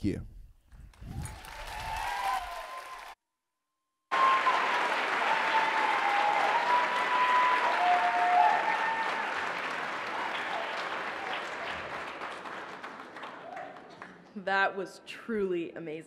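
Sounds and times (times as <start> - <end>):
audience applause: 1.1 - 3.2, 4.1 - 14.2.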